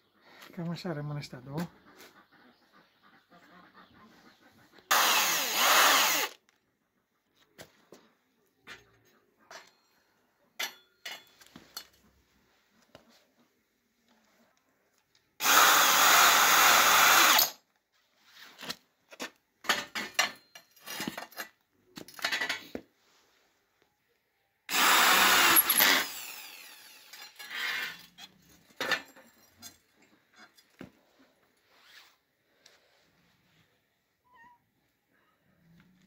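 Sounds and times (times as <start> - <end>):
cordless drill driving screws: 4.9 - 6.4, 15.4 - 17.6, 24.7 - 28.1
metal tubes clinking: 19.6 - 22.6, 25.5 - 30.8.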